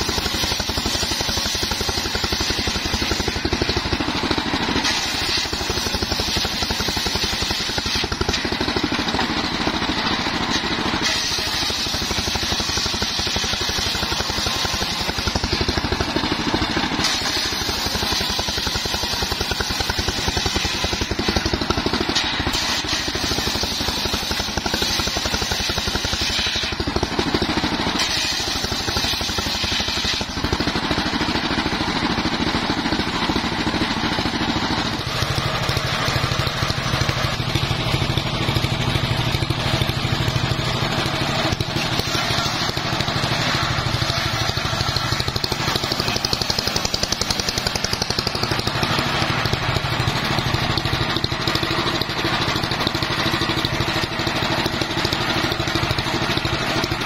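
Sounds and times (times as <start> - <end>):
circular saw ripping through logs: 0.0 - 57.0.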